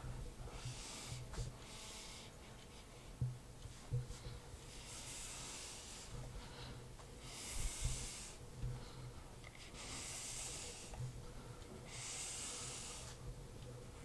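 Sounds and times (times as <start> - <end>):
low room hum: 0.0 - 14.0
whiteboard eraser wiping: 0.5 - 3.1, 3.7 - 6.2, 7.2 - 8.4.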